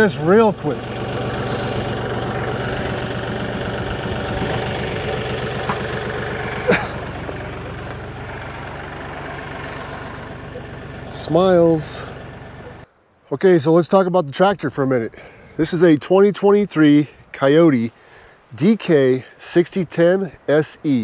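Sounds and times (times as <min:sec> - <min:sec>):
tractor diesel engine idling: 0:00.0 - 0:12.9.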